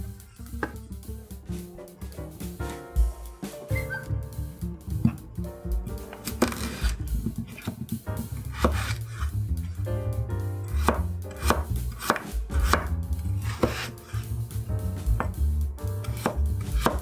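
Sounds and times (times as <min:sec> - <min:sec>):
knife cutting potato on cutting board: 0:06.0 - 0:09.4, 0:10.7 - 0:14.3, 0:15.0 - 0:15.4, 0:16.0 - 0:17.0.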